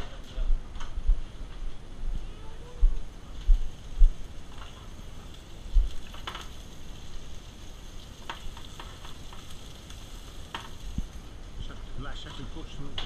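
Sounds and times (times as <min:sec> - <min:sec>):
meat sizzling in a pan: 0:03.1 - 0:13.0.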